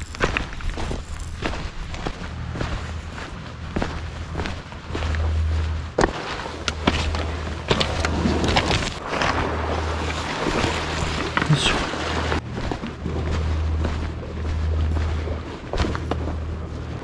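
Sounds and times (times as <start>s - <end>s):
footsteps on loose stones: 0.0s - 17.0s
waves washing on stony shore: 6.1s - 12.4s.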